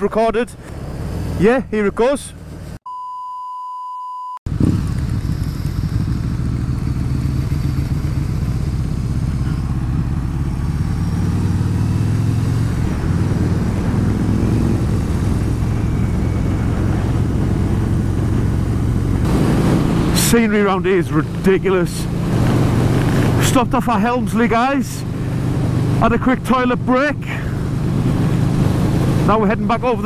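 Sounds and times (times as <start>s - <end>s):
motorcycle engine running: 4.5s - 30.0s
wind rush: 10.7s - 24.3s, 27.5s - 29.8s.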